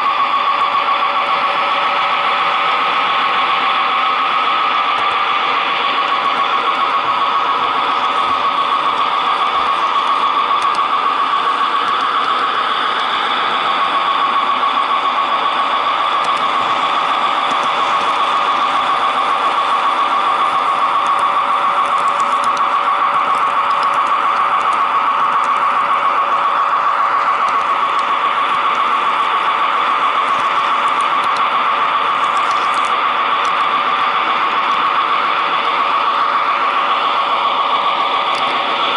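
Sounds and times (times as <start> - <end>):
model train whirr and whine: 0.0 - 38.9.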